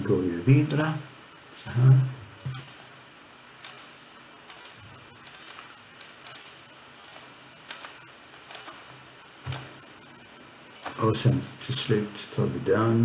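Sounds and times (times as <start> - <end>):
low hiss: 0.0 - 13.0
computer mouse and keyboard clicks: 2.4 - 2.8, 3.6 - 9.7.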